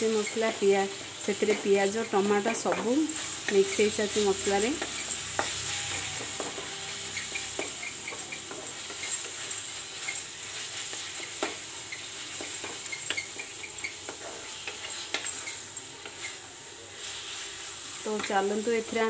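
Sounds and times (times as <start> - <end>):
masala sizzling in oil: 0.0 - 19.0
spatula scraping pan: 0.2 - 19.0.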